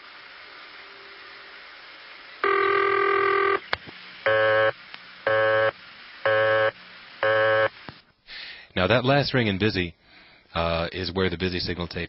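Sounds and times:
buzzy phone ring: 2.4s - 3.6s, 4.3s - 4.7s, 5.3s - 7.8s
pulsing busy signal: 4.3s - 7.7s.

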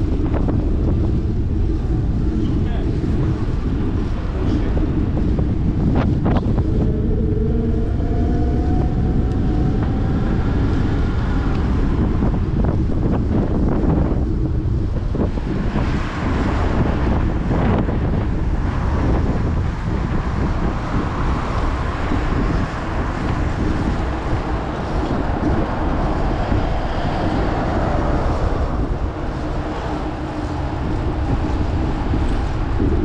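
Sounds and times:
wind buffeting microphone: 0.0s - 33.0s
car traffic passing: 6.2s - 14.3s, 15.2s - 33.0s.

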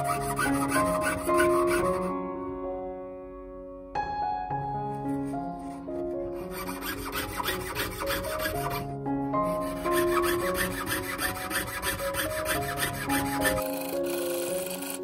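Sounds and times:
saw rasping through metal: 0.0s - 2.1s, 5.6s - 15.0s
soft piano music: 0.0s - 15.0s.

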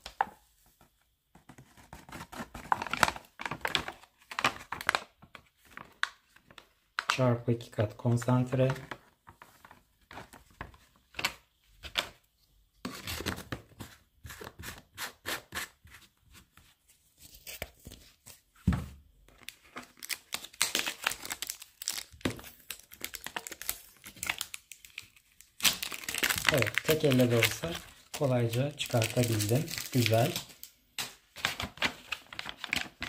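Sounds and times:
plastic shrink-wrap tearing: 19.8s - 30.7s.

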